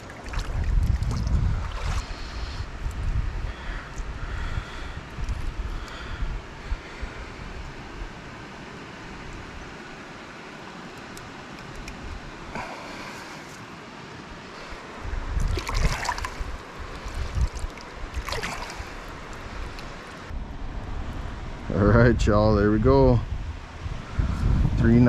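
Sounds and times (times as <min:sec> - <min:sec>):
stream flowing: 0:00.0 - 0:21.7
hands splashing water: 0:15.4 - 0:16.4, 0:17.0 - 0:19.8.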